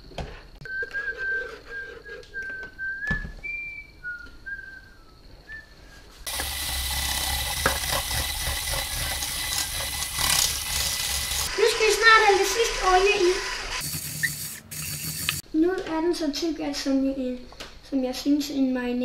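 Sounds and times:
person whistling: 0:00.6 - 0:06.2
stick blender whirring: 0:06.3 - 0:15.4.

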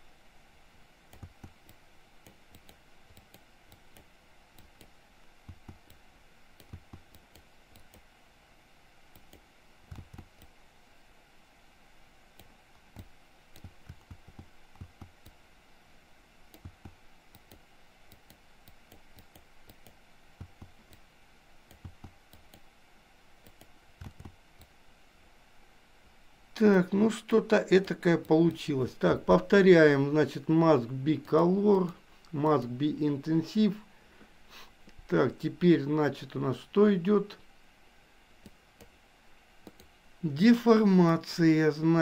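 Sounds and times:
low background hiss: 0:00.0 - 0:42.0
mouse and keyboard clicks: 0:01.1 - 0:06.0, 0:06.6 - 0:08.1, 0:09.2 - 0:10.6, 0:12.4 - 0:15.4, 0:16.5 - 0:21.0, 0:21.7 - 0:22.7, 0:23.4 - 0:24.7.

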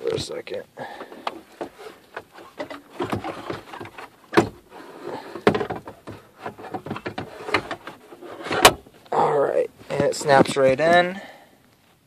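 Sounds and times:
rustling handling noise: 0:00.0 - 0:12.0
plastic knocks and clicks: 0:05.4 - 0:08.8.

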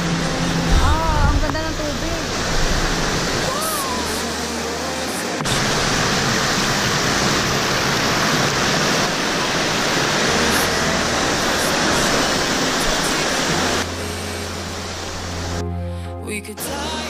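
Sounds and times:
faint background music: 0:00.0 - 0:02.8
water rushing over rocks: 0:00.0 - 0:15.7.

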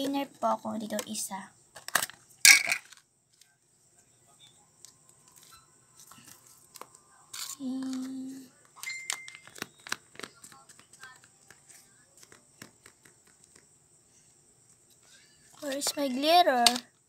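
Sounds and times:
plastic cup clicks: 0:07.8 - 0:10.6.

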